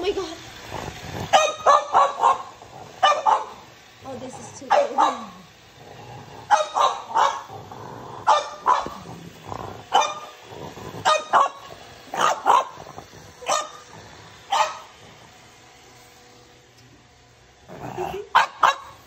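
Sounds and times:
robot vacuum running: 0.0s - 19.0s
dog barking: 1.3s - 3.6s, 4.6s - 5.4s, 6.5s - 7.5s, 8.2s - 9.1s, 9.9s - 10.3s, 11.0s - 13.8s, 14.5s - 14.9s, 18.3s - 19.0s.

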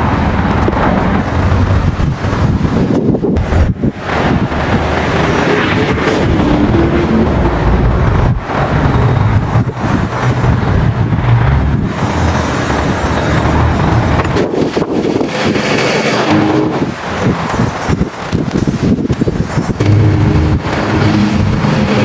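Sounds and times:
lawn mower engine cutting grass: 11.8s - 22.0s.

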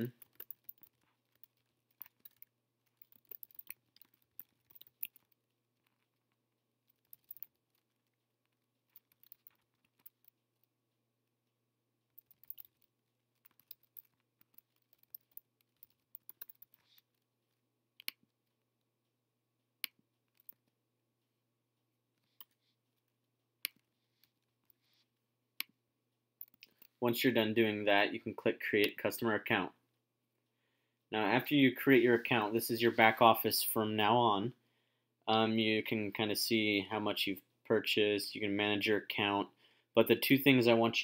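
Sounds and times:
typing on computer keyboard: 0.0s - 6.0s, 6.9s - 8.0s, 8.9s - 10.4s, 12.2s - 17.0s.

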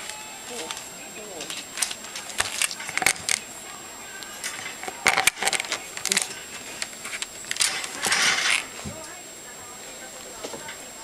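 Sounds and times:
metal pen bars rattling: 1.4s - 3.4s, 4.4s - 8.7s.

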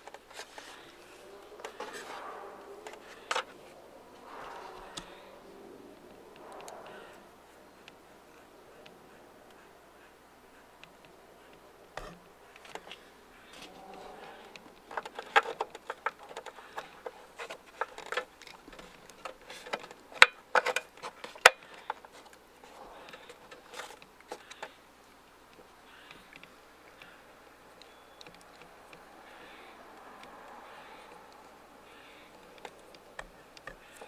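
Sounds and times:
sharp clicks: 10.8s - 34.0s.

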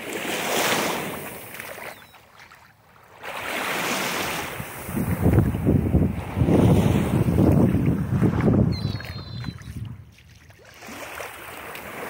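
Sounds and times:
small waves washing on sandy shore: 0.0s - 12.0s
wind buffeting microphone: 4.4s - 10.4s.

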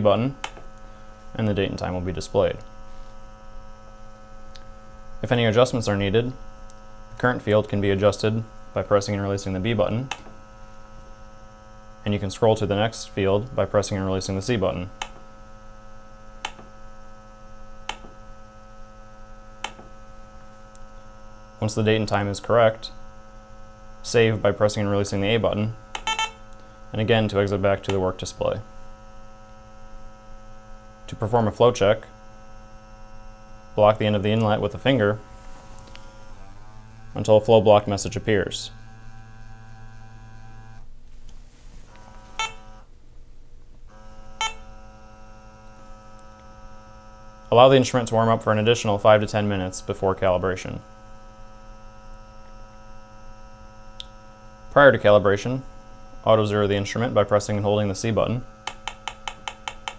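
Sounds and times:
steady electrical hum: 0.0s - 59.9s
push button clicks: 42.4s - 42.7s.

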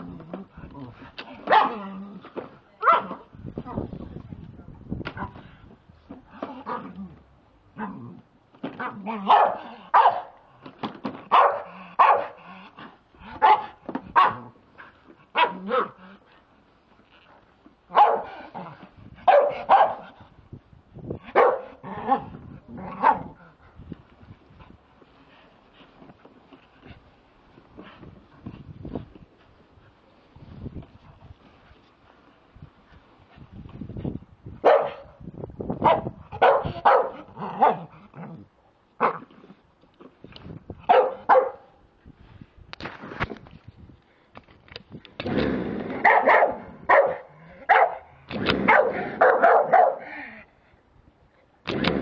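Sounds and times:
dog barking: 1.5s - 1.8s, 2.8s - 3.2s, 9.2s - 10.3s, 11.3s - 12.4s, 13.4s - 14.4s, 15.4s - 15.9s, 17.9s - 18.4s, 19.3s - 20.0s, 21.4s - 21.7s, 23.0s - 23.3s, 34.6s - 35.1s, 35.8s - 37.9s, 40.9s - 41.6s, 46.0s - 48.1s, 48.7s - 50.0s.

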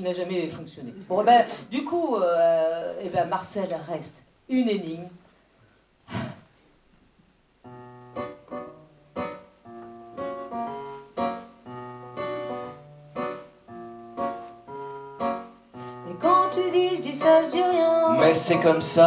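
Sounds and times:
digital piano chords: 7.6s - 19.0s.

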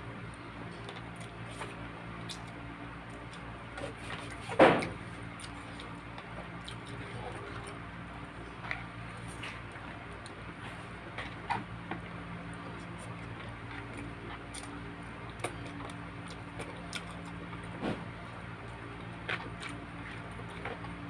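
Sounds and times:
steady low hum: 0.0s - 21.0s
eating clicks and smacks: 0.8s - 3.5s, 12.5s - 17.7s.

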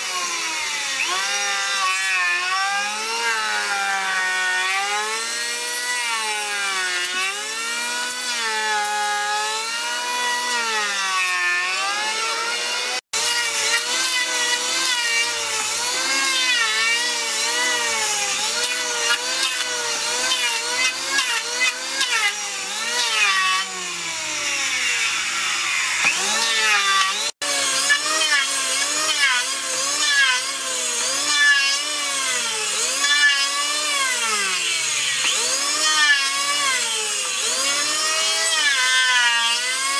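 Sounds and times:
electric planer whining: 0.0s - 39.9s.

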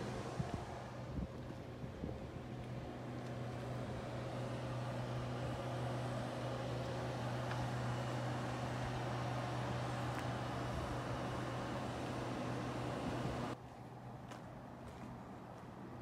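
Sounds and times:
low mechanical hum: 0.0s - 16.0s
outdoor background noise: 0.0s - 16.0s.

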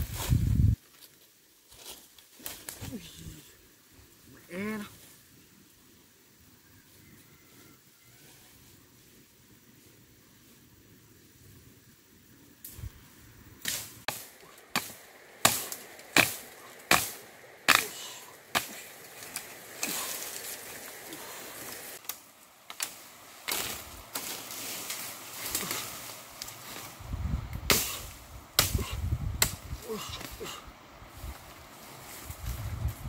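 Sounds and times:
leaves and stems rustling: 0.0s - 33.0s
machete striking bamboo: 13.6s - 20.2s, 27.7s - 29.6s.

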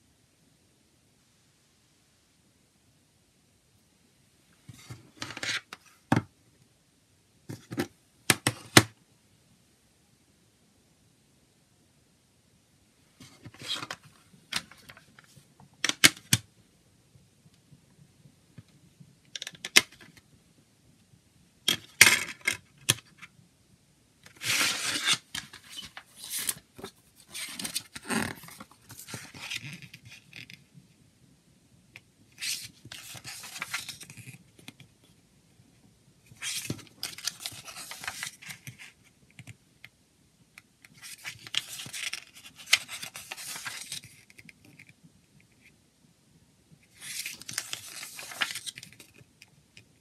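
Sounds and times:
paper rustling: 24.3s - 30.4s, 32.4s - 34.4s, 36.4s - 39.0s, 41.0s - 44.5s, 46.9s - 49.2s.

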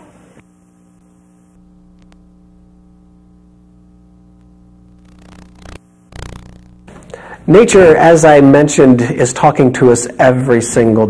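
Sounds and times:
low electrical hum: 0.0s - 11.0s
small click: 2.0s - 2.2s.

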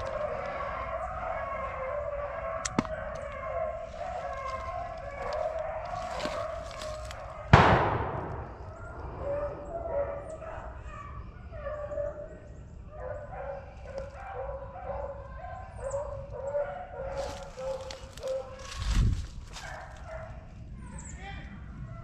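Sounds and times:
dogs baying: 0.0s - 7.5s, 8.6s - 18.8s, 19.5s - 21.0s
shotgun shot: 7.5s - 9.3s.

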